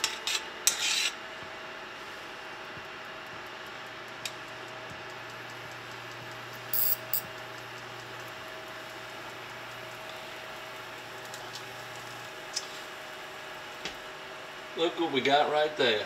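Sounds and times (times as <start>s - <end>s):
butter sizzling in a skillet: 7.4s - 13.8s.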